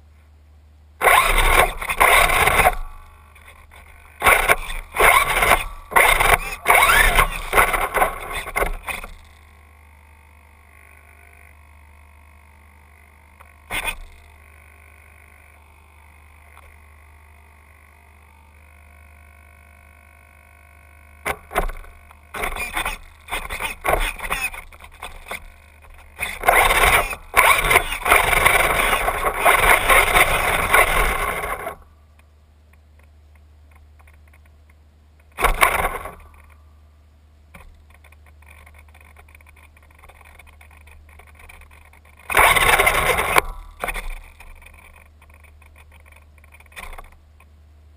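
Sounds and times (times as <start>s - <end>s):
wheels spinning and scraping: 1.0s - 9.6s, 21.2s - 31.9s, 37.5s - 47.5s
electric motor whining: 1.0s - 31.9s.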